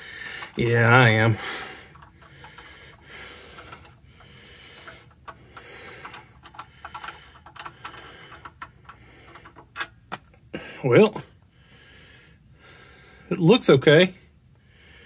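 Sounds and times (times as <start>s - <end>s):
drain plug clicking and rubbing: 0.0s - 10.4s.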